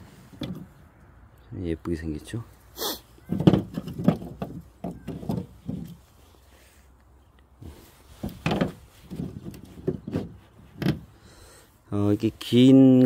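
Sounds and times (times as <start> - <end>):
branches knocking and clattering: 3.2 - 6.2, 7.6 - 11.2.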